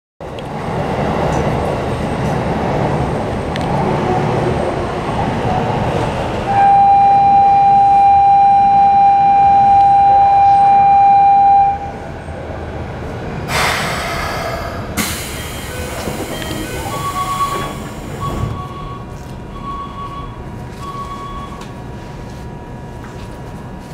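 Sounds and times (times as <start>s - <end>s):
busy platform noise: 0.2s - 23.9s
station departure buzzer: 6.5s - 11.9s
train doors hissing air: 13.5s - 18.6s.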